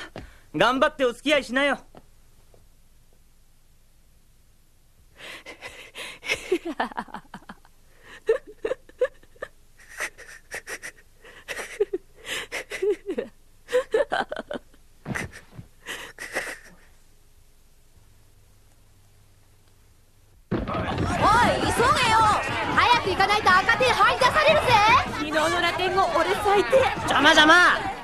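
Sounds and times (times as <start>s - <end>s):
boy sobbing: 8.1s - 14.5s, 15.2s - 16.9s.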